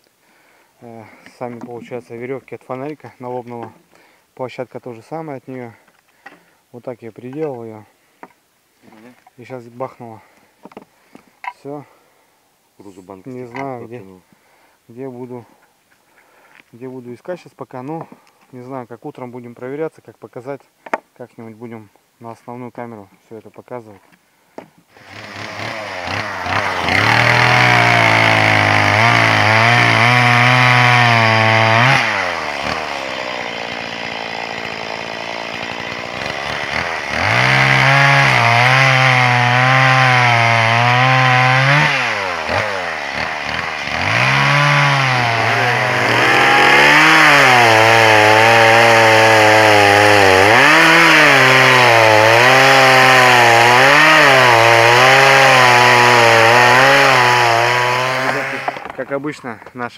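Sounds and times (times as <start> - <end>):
chainsaw cutting logs: 24.9 - 59.1.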